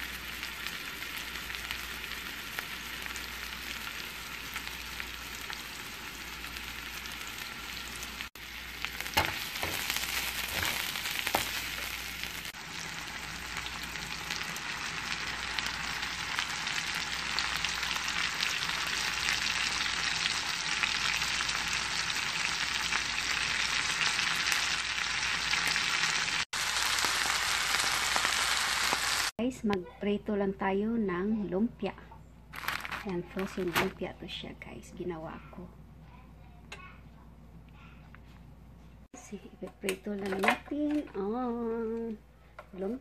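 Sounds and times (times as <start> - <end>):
vegetables sizzling in a frying pan: 0.0 - 29.3, 32.6 - 33.9.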